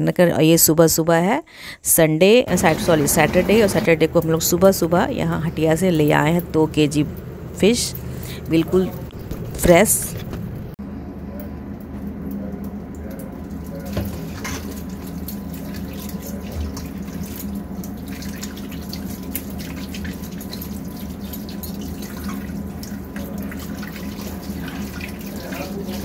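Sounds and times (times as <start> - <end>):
hands rinsing fish: 2.5 - 4.3, 13.2 - 26.0.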